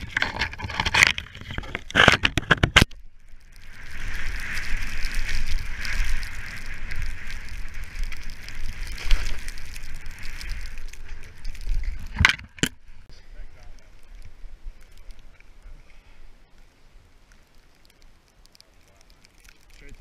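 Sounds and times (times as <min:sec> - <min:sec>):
wind rumble on camera: 0:00.0 - 0:18.6
skier crackling through branches: 0:02.8 - 0:12.2
skis hissing through powder snow: 0:03.7 - 0:12.1.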